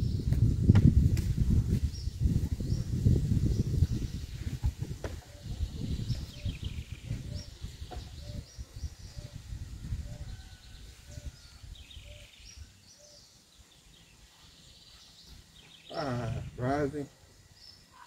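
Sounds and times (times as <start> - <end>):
wind rumbling on microphone: 0.0 - 12.8, 16.1 - 16.8
birds chirping: 1.8 - 18.0.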